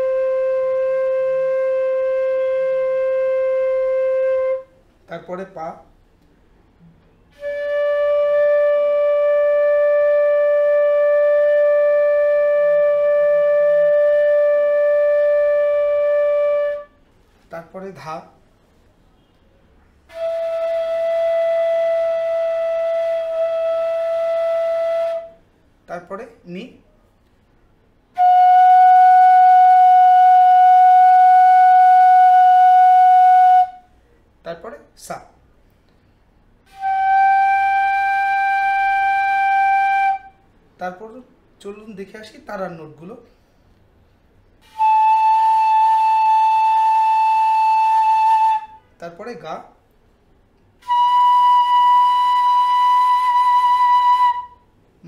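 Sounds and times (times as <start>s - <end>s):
bamboo flute long note: 0.0s - 4.7s, 7.3s - 16.9s, 20.1s - 25.4s, 28.2s - 33.8s, 36.7s - 40.4s, 44.6s - 49.0s, 50.8s - 54.6s.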